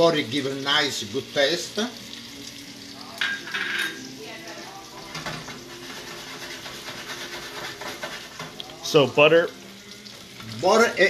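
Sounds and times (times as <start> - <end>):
chicken sizzling in a pan: 0.0 - 11.0
utensil scraping a pan: 5.1 - 8.7.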